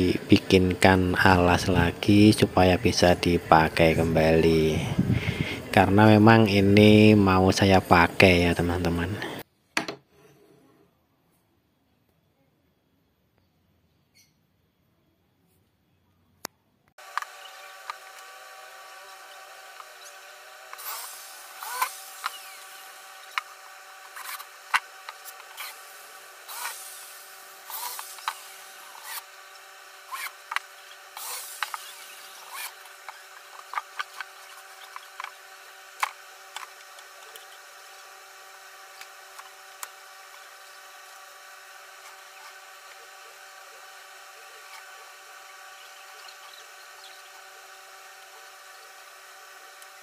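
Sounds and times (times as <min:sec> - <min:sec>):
steady hum: 0:00.0 - 0:09.4, 0:17.0 - 0:50.0
cordless drill driving screws: 0:17.0 - 0:50.0.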